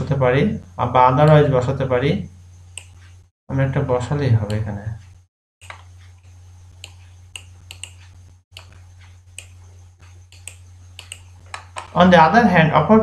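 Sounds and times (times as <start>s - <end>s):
low electrical hum: 0.0s - 13.0s
computer mouse clicking: 2.8s - 3.2s, 5.6s - 12.0s.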